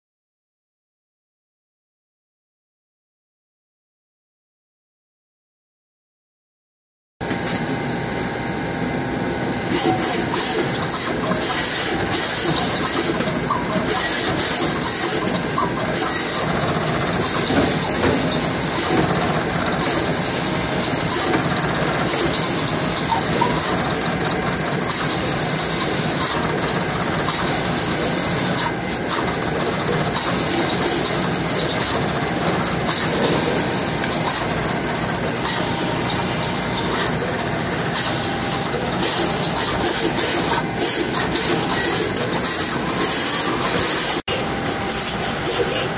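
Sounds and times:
pick-and-place machine whirring: 7.2s - 45.9s
rapid irregular machine clicking: 9.7s - 44.2s.

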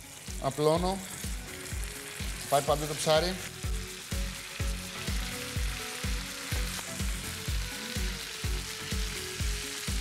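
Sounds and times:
background music with steady beat: 0.0s - 10.0s
oil sizzling while deep-frying: 0.0s - 10.0s.

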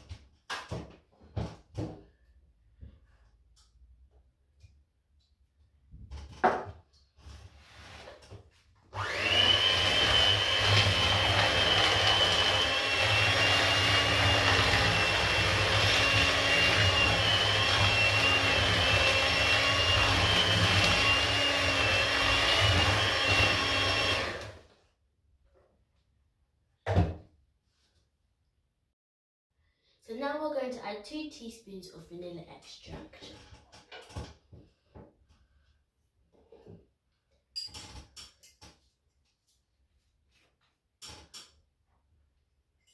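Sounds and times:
electric hand mixer whining: 9.0s - 24.7s.

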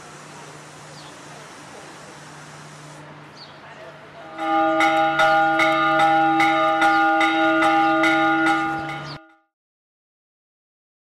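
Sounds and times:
metal temple bell ringing: 4.2s - 9.5s.

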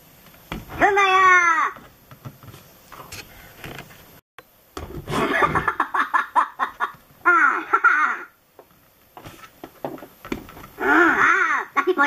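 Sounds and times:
high-pitched cartoonish laughter: 5.2s - 8.4s.

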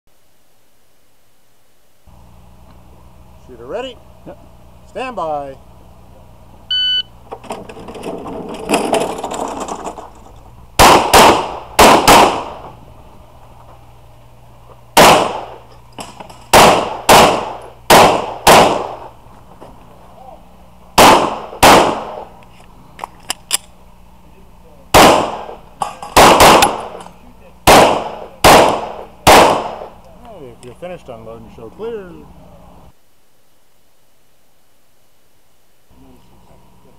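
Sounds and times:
shot timer beep: 6.7s - 7.1s
pistol shots with echo: 10.8s - 12.7s, 15.0s - 15.6s, 16.5s - 19.1s, 21.0s - 22.3s, 24.9s - 27.0s, 27.6s - 30.0s.

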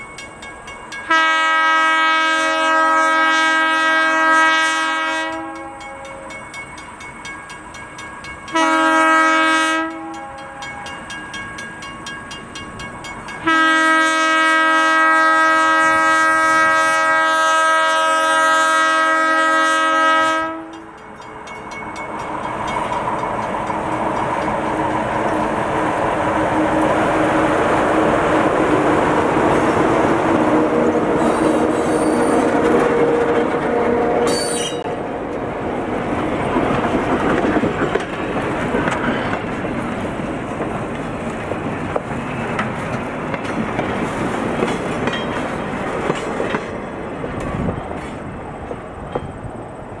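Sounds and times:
train cars rolling: 20.5s - 50.0s
wheels clicking over rail joints: 20.6s - 27.0s, 36.2s - 49.5s
wheel squeals: 31.2s - 32.6s, 34.2s - 34.9s.

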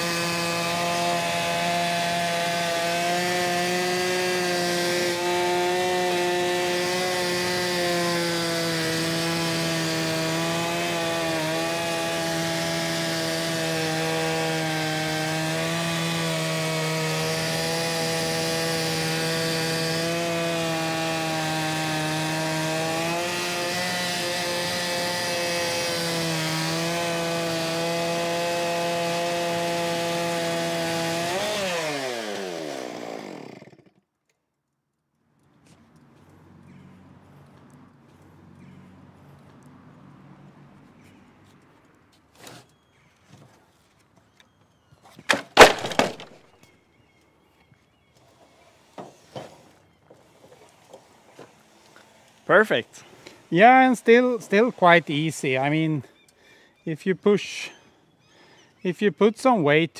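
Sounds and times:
chainsaw cutting a log: 0.0s - 34.1s, 45.3s - 46.4s.

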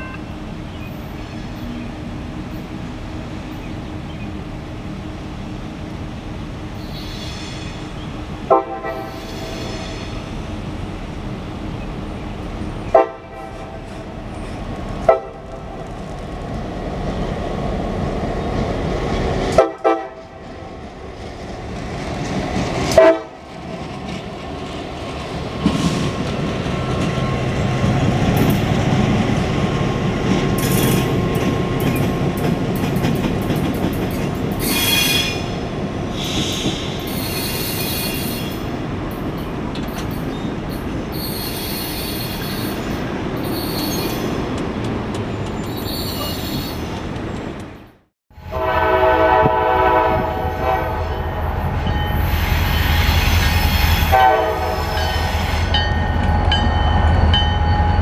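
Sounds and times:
diesel locomotive engine rumbling: 0.0s - 58.0s
train wheels squealing: 6.8s - 8.1s, 9.0s - 10.3s, 34.6s - 38.7s, 39.9s - 44.4s, 45.3s - 47.0s, 51.8s - 54.1s
locomotive horn blasts: 8.5s - 9.2s, 12.9s - 13.8s, 19.6s - 20.3s, 23.0s - 23.4s, 48.4s - 51.5s, 54.0s - 55.3s.

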